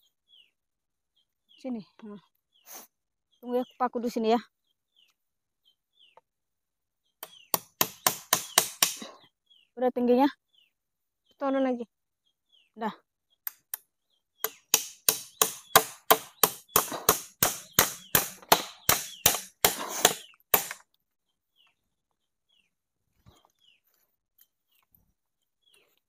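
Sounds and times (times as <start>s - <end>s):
hammer striking a nail: 7.2s - 9.0s, 14.4s - 20.8s.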